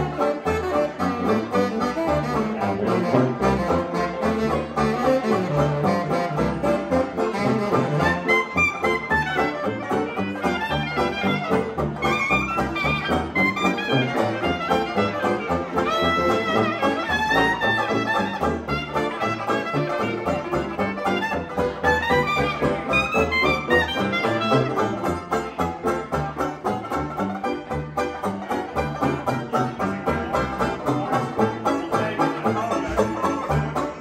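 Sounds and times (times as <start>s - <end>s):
clarinet: 0.0s - 34.0s
jazz band playing: 0.0s - 34.0s.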